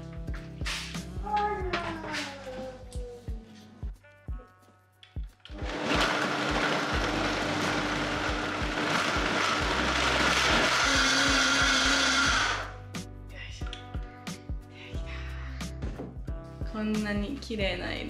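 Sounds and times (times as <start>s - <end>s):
blender running: 5.5s - 12.8s.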